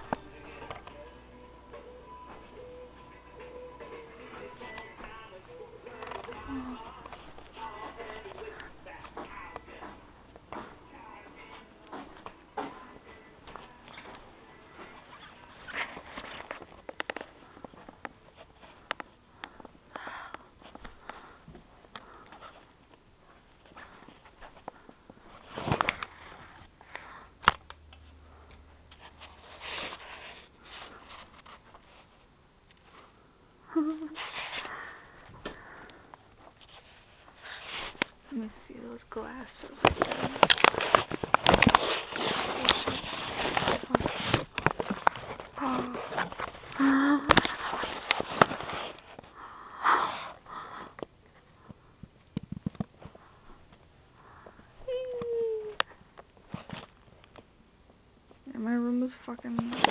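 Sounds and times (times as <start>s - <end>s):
woman humming: 2.2s - 11.9s, 33.6s - 34.3s, 45.5s - 47.6s, 54.8s - 56.0s
sniffing breaths: 34.1s - 38.0s, 45.5s - 51.9s
camera handling and rustling: 39.8s - 49.3s.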